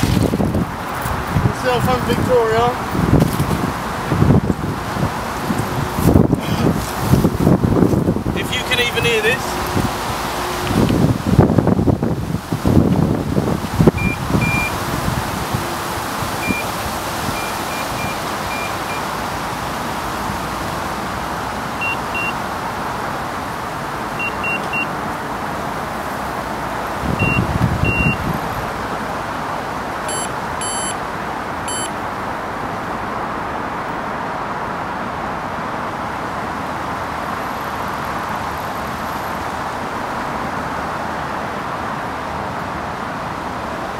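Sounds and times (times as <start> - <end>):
wind buffeting microphone: 0.0 - 18.5, 25.7 - 30.6
bite alarm beeps: 14.0 - 14.7, 16.4 - 16.7, 17.4 - 19.0, 21.8 - 22.4, 24.2 - 24.9, 27.2 - 28.2, 30.1 - 31.0, 31.7 - 31.9.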